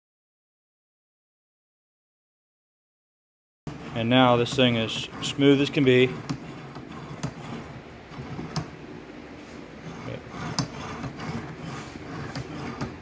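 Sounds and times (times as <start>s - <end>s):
faint rubbing of gears: 3.7s - 8.8s, 9.4s - 13.0s.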